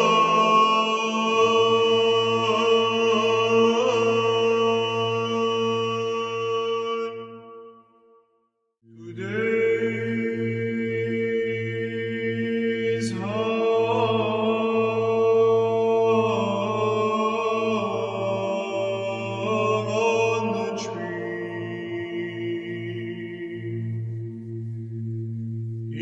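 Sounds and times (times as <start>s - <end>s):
choral chant: 0.0s - 7.4s, 9.0s - 24.4s
low held drone: 9.0s - 26.0s.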